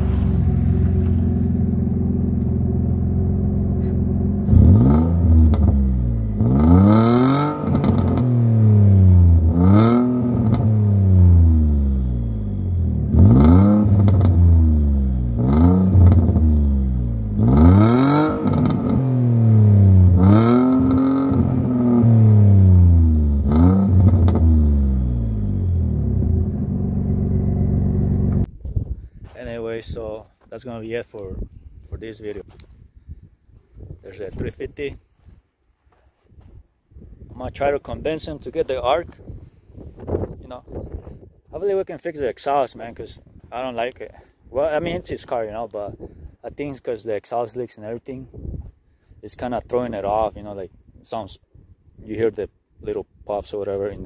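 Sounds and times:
car engine idling and revving: 0.0s - 28.5s.

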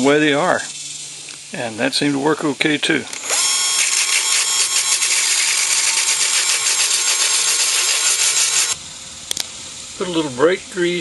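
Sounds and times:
cordless drill whirring: 3.2s - 8.8s
abrasive disc scratching metal: 3.3s - 8.8s.

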